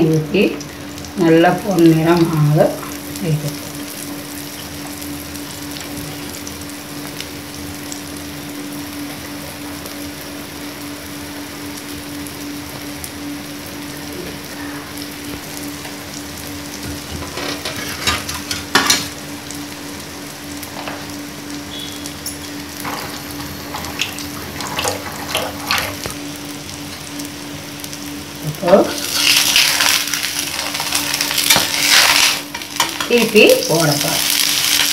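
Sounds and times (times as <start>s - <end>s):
batter sizzling in oil: 0.0s - 34.9s
crackles and pops: 20.6s - 33.2s.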